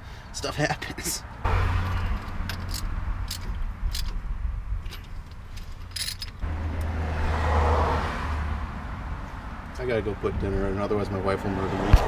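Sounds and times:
metallic clicks and clinks: 1.8s - 4.2s, 4.8s - 6.4s.

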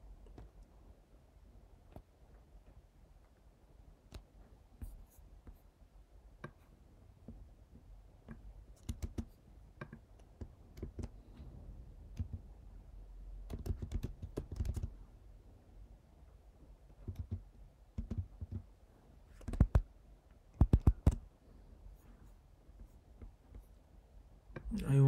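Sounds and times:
keyboard typing: 8.3s - 11.2s, 13.4s - 15.0s, 17.0s - 18.7s, 19.4s - 19.8s, 20.6s - 21.2s.

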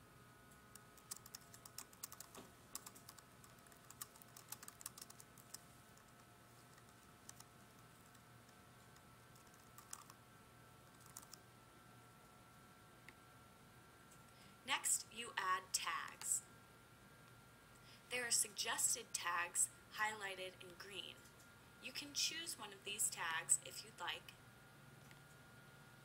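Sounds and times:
faint steady hum: 0.0s - 26.0s
keyboard typing: 0.7s - 10.2s, 10.9s - 11.4s.

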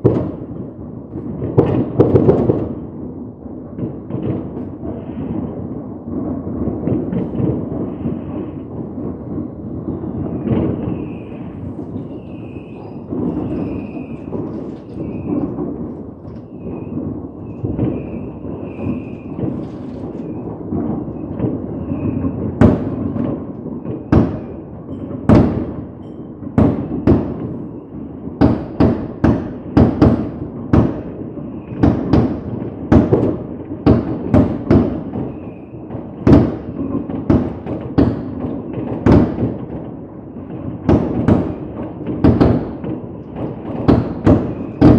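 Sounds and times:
sharp firework bangs: 0.0s - 3.1s, 3.7s - 44.9s
fireworks rumble: 0.0s - 44.9s.

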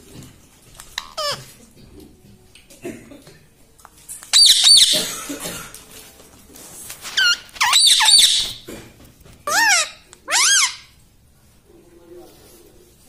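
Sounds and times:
parakeet squawking: 0.9s - 1.5s, 4.3s - 5.2s, 7.1s - 8.7s, 9.4s - 11.0s.

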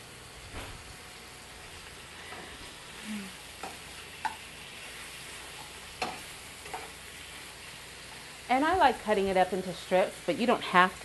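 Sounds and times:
chicken sizzling in a frying pan: 0.0s - 11.0s
tongs clicking against a pan: 3.6s - 4.4s, 5.6s - 7.0s.

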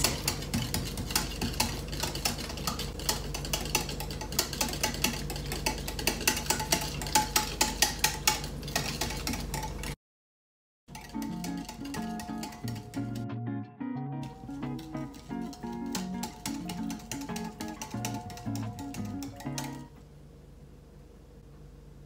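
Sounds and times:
whisk clicking against glass jug: 0.0s - 10.0s, 10.9s - 13.3s, 14.2s - 19.9s
acoustic guitar music: 11.1s - 19.9s.

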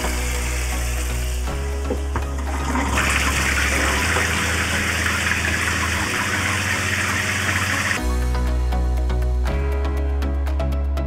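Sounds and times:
shower water spraying: 0.0s - 8.0s.

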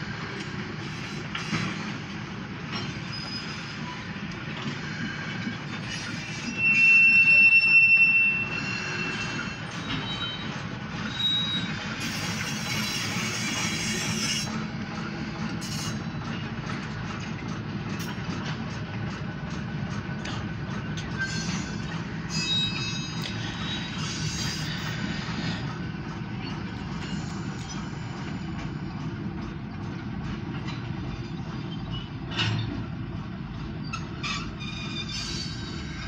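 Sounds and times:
train wheels rumbling on rail: 0.0s - 36.0s
high-pitched wheel squeal: 5.8s - 14.6s, 21.2s - 25.2s, 33.8s - 36.0s.

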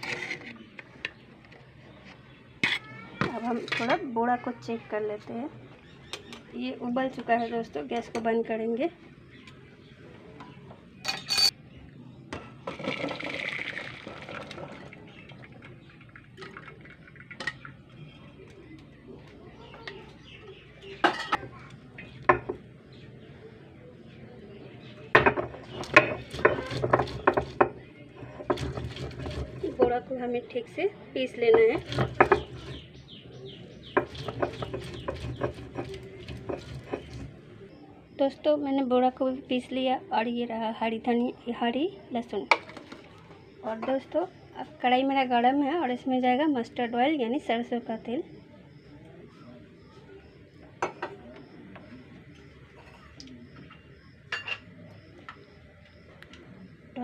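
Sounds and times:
metal pot clinking: 11.1s - 11.5s
water pouring into strainer: 12.7s - 17.5s
stone rolling pin grinding: 25.4s - 29.9s, 31.8s - 32.9s, 33.8s - 37.4s
stone clacking and scraping: 34.0s - 37.3s.

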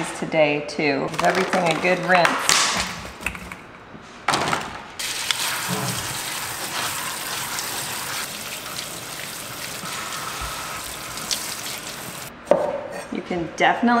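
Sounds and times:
faucet spray running: 5.0s - 12.3s
water splattering on fruit: 5.0s - 12.3s.

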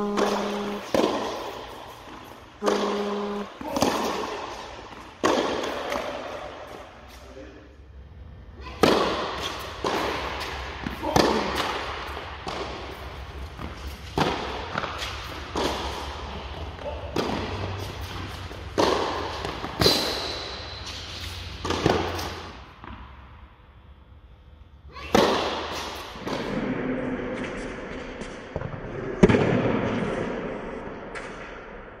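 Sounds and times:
tennis racket strikes: 0.0s - 6.8s
tennis ball bouncing: 0.0s - 6.9s, 8.8s - 23.1s.

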